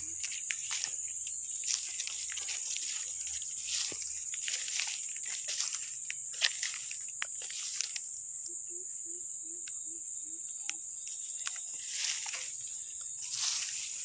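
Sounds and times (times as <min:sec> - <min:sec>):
footsteps through dry grass: 0:00.0 - 0:08.2, 0:11.0 - 0:14.0
insect drone: 0:00.0 - 0:14.0.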